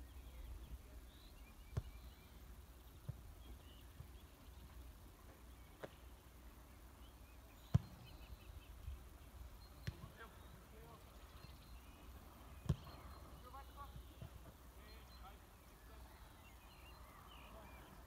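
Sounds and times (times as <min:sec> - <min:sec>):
footballs being kicked: 0:12.6 - 0:13.0.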